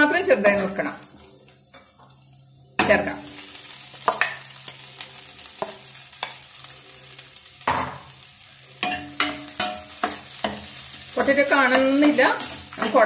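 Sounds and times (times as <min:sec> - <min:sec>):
oil sizzling in a pan: 0:00.0 - 0:13.0.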